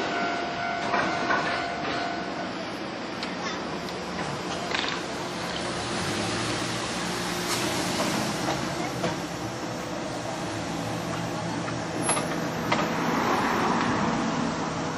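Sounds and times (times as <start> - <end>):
traffic engines humming: 2.2 - 14.9
car passing close: 5.2 - 14.9.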